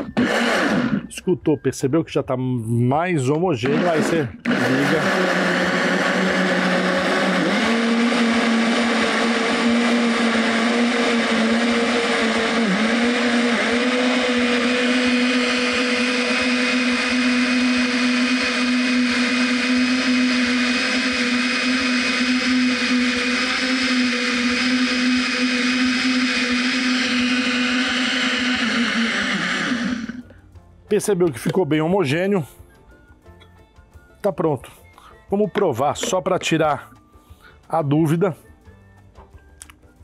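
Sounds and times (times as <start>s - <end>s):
blender motor whine: 0.0s - 1.1s, 3.6s - 30.4s.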